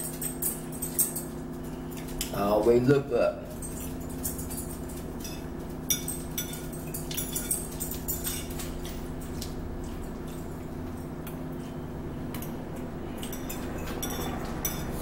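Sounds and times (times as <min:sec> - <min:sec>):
steady low hum: 0:00.0 - 0:15.0
forks scraping against plates: 0:13.1 - 0:15.0.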